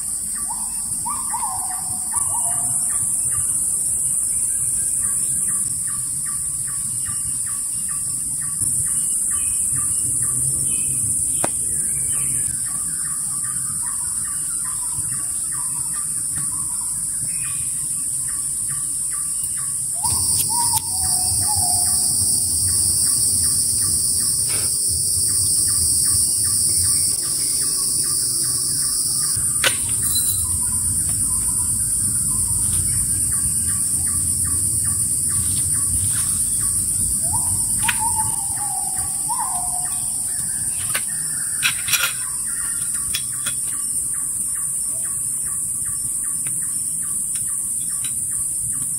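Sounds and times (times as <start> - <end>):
high insect drone: 0.0 - 48.9
lower insect drone: 0.0 - 48.9
rhythmic insect ticking: 18.1 - 48.9
bird falling calls: 20.0 - 22.4, 35.7 - 42.9.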